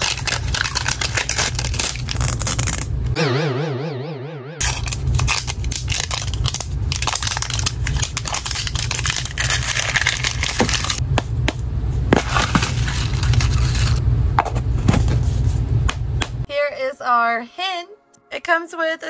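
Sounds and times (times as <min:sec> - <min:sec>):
plastic wrap crinkling: 0:00.0 - 0:03.0, 0:04.7 - 0:11.0
steady low rumble: 0:02.8 - 0:09.5, 0:10.4 - 0:16.5.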